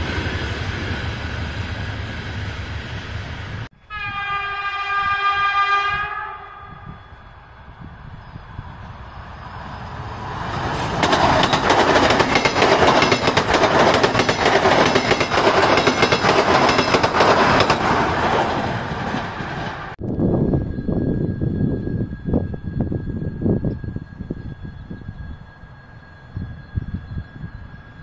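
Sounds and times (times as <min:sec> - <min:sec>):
train passing with wheel clatter: 0:00.0 - 0:28.0
faint steady high tone: 0:20.4 - 0:28.0.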